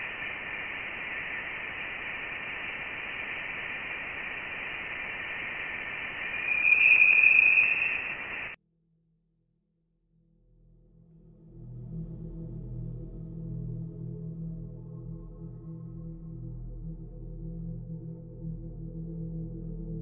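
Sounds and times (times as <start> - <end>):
radio-like hiss: 0.0 - 8.6
thin whistling tones: 0.0 - 8.6.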